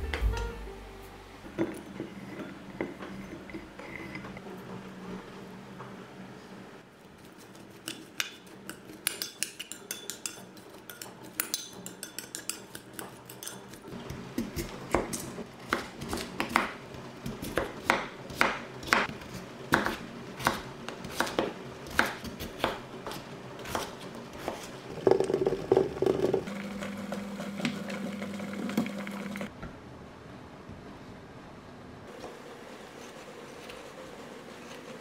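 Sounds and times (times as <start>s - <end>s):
knife chopping on wooden board: 14.4s - 19.1s, 19.7s - 25.4s.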